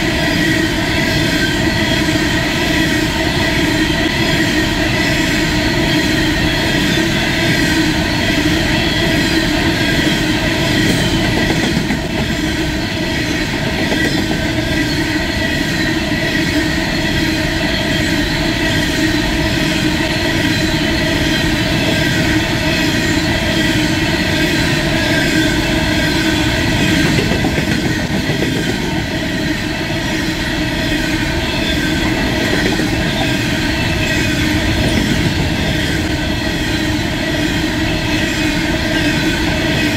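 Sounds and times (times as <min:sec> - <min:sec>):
train wagons rolling on rails: 0:00.0 - 0:39.9.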